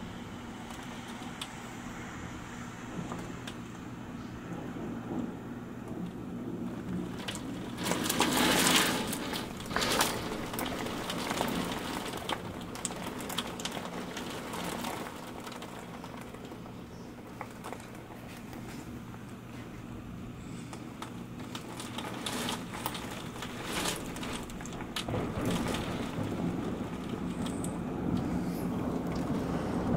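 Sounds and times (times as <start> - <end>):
rain hiss: 0.0 - 19.1, 20.2 - 29.9
steady low hum: 15.2 - 29.9.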